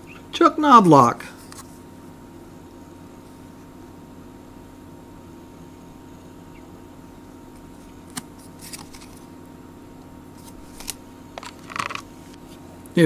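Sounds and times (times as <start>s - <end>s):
steady low hum: 0.0s - 13.0s
card rustling: 7.7s - 9.4s, 10.3s - 12.6s.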